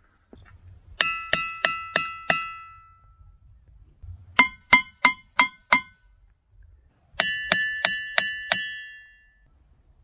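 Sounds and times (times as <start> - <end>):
hammer striking ringing rocks: 1.0 - 3.2, 4.4 - 6.2, 7.2 - 9.5.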